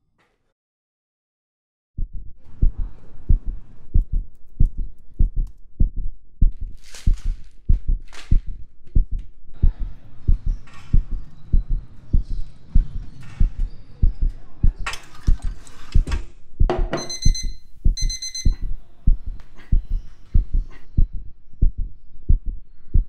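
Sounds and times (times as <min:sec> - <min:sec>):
heartbeat double thud: 0:02.0 - 0:14.8, 0:16.6 - 0:23.0
high electronic beeping: 0:17.0 - 0:18.7.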